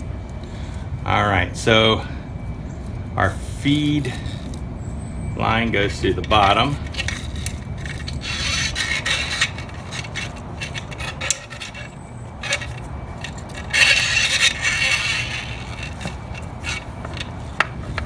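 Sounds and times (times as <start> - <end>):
hands rubbing and scraping a hose: 6.3 - 18.0.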